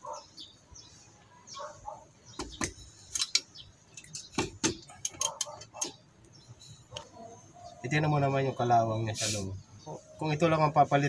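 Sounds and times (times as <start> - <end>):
wrench clicking and knocking on metal: 2.4 - 6.0.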